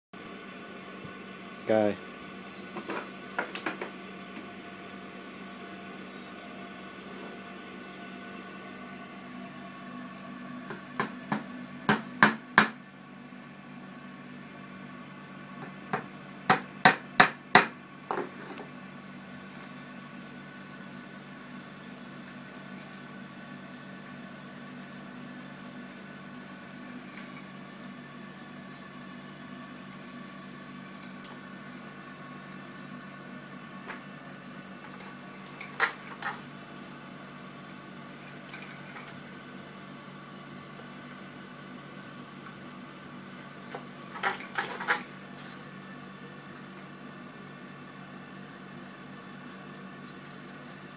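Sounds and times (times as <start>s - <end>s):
steady hum: 0.2s - 50.9s
small hammer tapping on wood: 10.7s - 12.8s, 15.6s - 17.7s
sharp knocks on wood: 11.0s - 12.8s, 15.9s - 18.2s.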